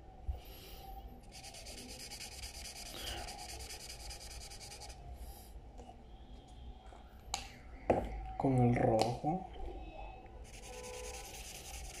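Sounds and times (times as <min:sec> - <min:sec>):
marker scratching on paper: 0:01.3 - 0:05.0, 0:10.4 - 0:12.0.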